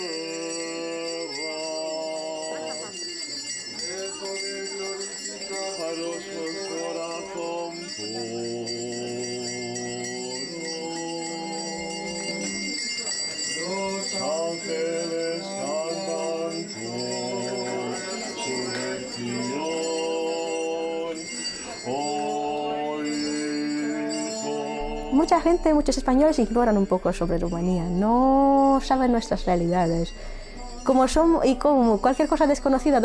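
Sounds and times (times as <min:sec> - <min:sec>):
small bells jingling: 0:00.0 - 0:33.0
voices chanting: 0:00.0 - 0:33.0.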